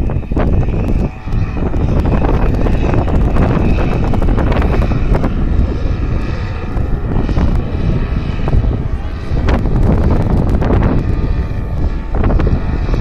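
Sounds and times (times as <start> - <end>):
paramotor engines droning: 0.0 - 13.0
wind rumbling on microphone: 0.0 - 13.0.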